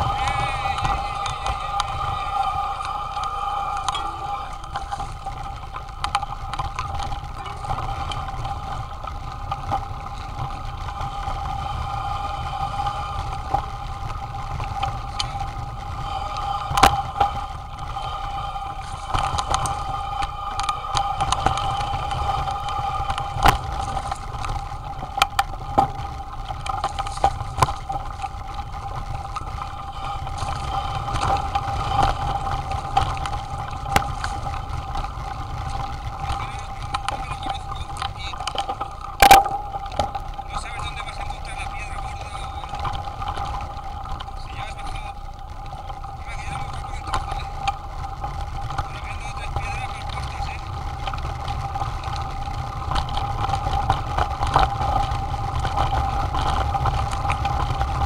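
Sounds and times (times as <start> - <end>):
bike rattling over bumps: 0.0 - 58.0
bike rumbling on dirt trail: 0.0 - 58.0
steady high hum: 0.0 - 58.0.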